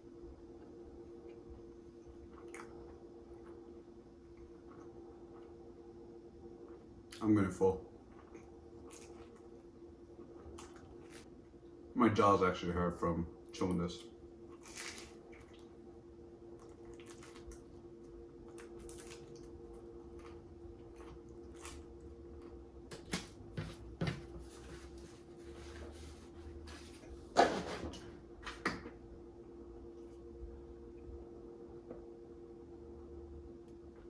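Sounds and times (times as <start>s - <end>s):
steady low hum: 0.0s - 34.0s
chewing crunchy food: 0.6s - 5.8s, 6.6s - 11.3s, 14.0s - 22.7s.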